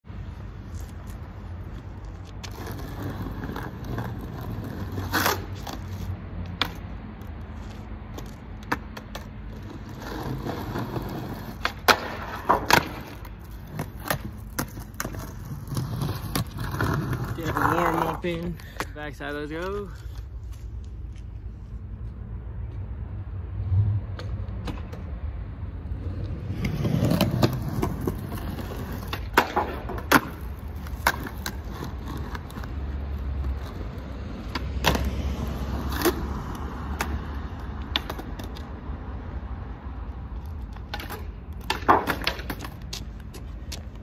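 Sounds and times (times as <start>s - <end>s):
skateboard wheels rolling on concrete: 0.0s - 44.0s
skateboard wooden clacks: 8.1s - 18.9s, 26.5s - 32.8s, 36.9s - 38.7s, 40.6s - 44.0s.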